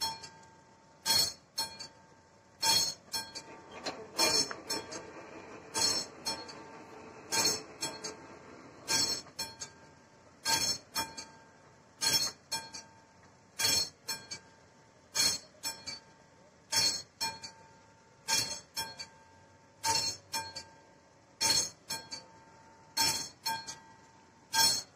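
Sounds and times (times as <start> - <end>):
level crossing bell ringing: 2.6 - 9.7.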